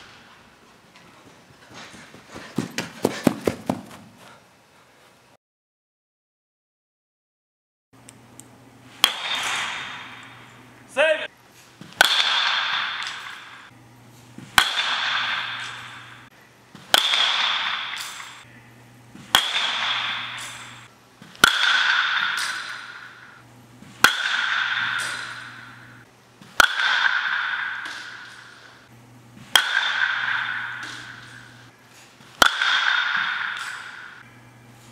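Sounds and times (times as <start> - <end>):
metal bat hitting baseballs: 8.9 - 13.7, 14.4 - 18.5, 19.2 - 34.4.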